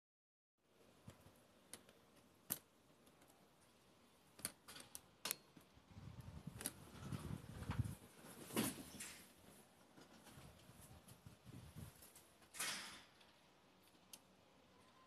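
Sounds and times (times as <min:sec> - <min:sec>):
faint irregular clicks: 0:01.0 - 0:05.8, 0:13.1 - 0:15.0.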